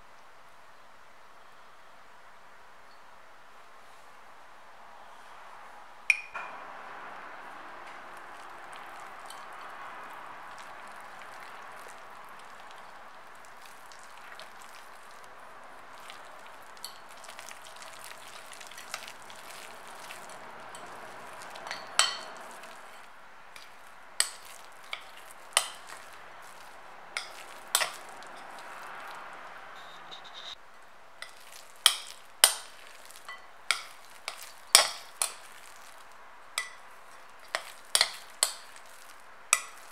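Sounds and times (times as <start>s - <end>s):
whisk stirring sticky dough: 8.1s - 29.3s, 31.2s - 39.9s.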